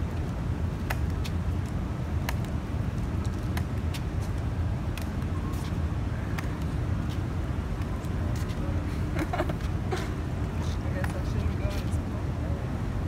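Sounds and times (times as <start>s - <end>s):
low street rumble: 0.0s - 13.0s
crutch and footstep clicks: 0.2s - 2.6s.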